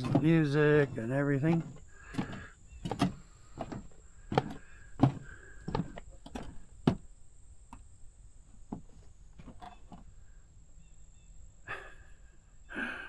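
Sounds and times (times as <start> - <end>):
footsteps on wooden boardwalk: 0.0 - 7.1, 8.5 - 10.1
quiet outdoor background: 0.0 - 13.0.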